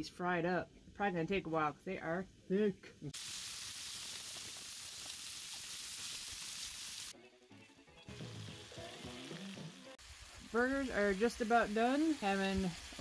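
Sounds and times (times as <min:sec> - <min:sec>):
burger patties sizzling: 0:03.1 - 0:07.2, 0:08.1 - 0:13.0.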